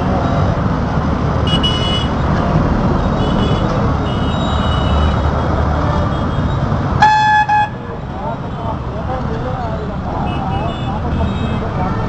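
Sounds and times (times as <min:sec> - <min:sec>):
road traffic rumble: 0:00.0 - 0:12.0
faint car horns: 0:06.1 - 0:07.9.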